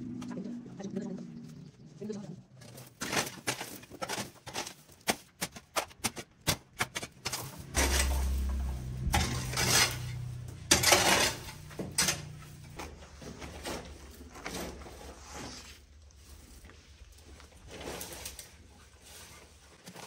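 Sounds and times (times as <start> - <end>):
hard objects clattering: 2.7 - 15.0
scraping strokes: 7.2 - 20.0
steady low rumble: 7.3 - 12.9.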